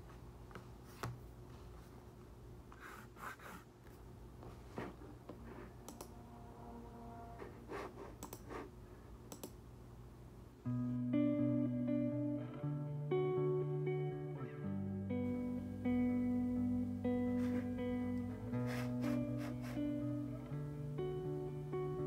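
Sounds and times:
guitar music: 10.6 - 22.0.

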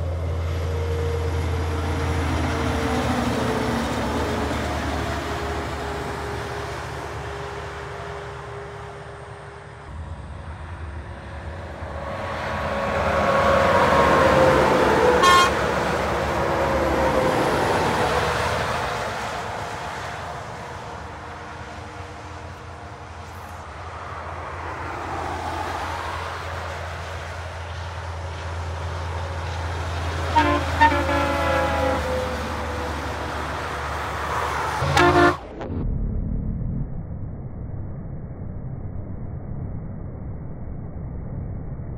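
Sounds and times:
heavy trucks passing: 0.0 - 35.8
truck horn blasts: 14.9 - 16.1, 30.2 - 32.8, 34.8 - 35.6
short horn toot: 15.2 - 15.6, 30.3 - 32.2, 34.8 - 35.6.

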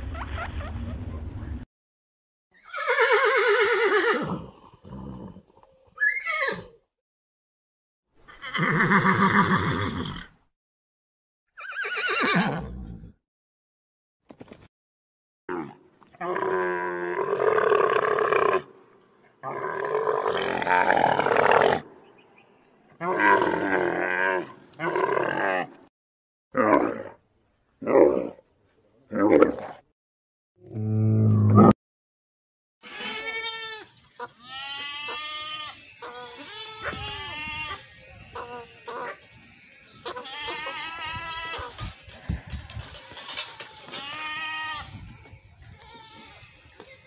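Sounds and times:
young goats bleating: 32.8 - 39.2, 39.9 - 47.0.

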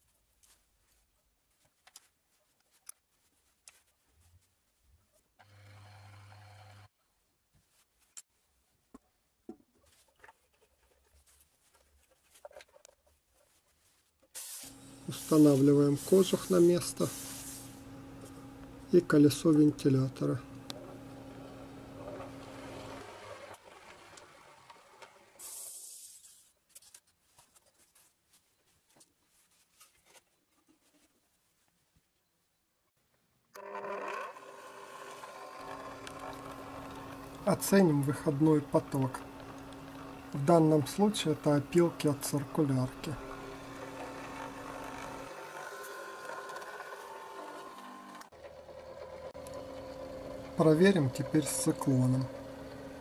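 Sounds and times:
short sharp hiss: 14.4 - 15.6, 25.4 - 26.4
blower hiss: 14.4 - 17.9, 25.4 - 26.3
motor hum: 17.7 - 25.1, 33.6 - 53.0.

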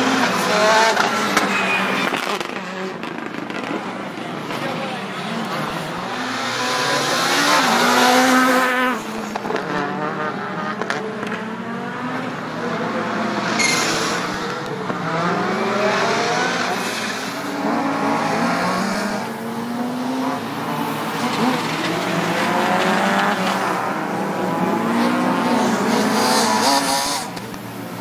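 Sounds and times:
rally car engine revving hard: 5.3 - 27.5.

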